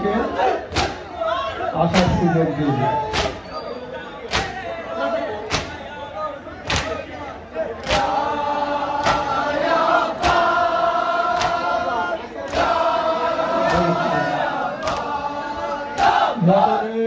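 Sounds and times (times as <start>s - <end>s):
men chanting together: 4.3s - 17.0s.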